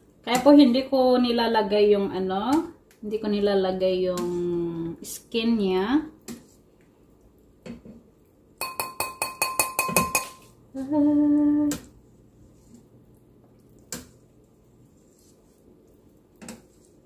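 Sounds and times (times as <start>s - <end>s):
metal skimmer tapping pot rim: 8.6s - 10.4s
person humming: 10.7s - 11.9s.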